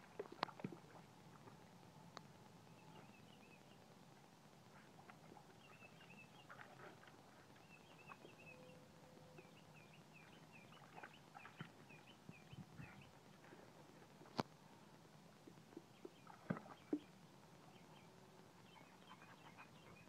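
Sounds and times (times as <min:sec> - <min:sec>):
dog paddling in water: 0:00.0 - 0:01.8, 0:04.6 - 0:14.4, 0:15.4 - 0:20.0.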